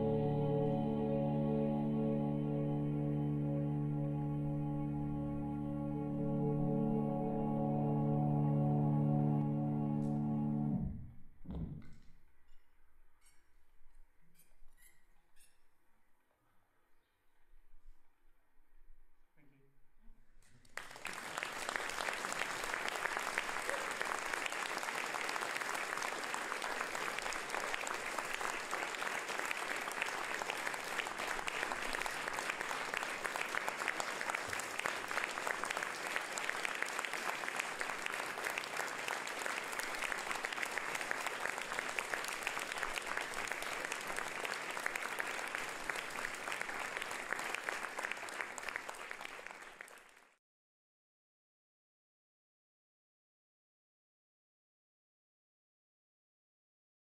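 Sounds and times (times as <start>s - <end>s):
audience applauding: 20.6s - 50.4s.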